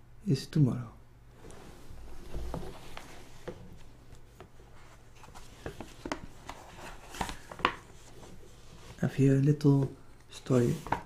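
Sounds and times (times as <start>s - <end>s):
paper rustling: 2.1s - 9.2s.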